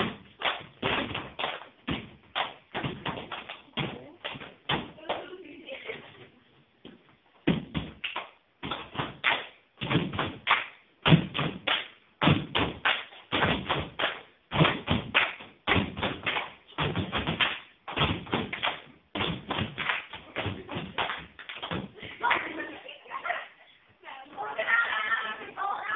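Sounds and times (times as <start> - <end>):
children's feet stamping on hard floor: 0.0 - 8.0, 11.0 - 22.8.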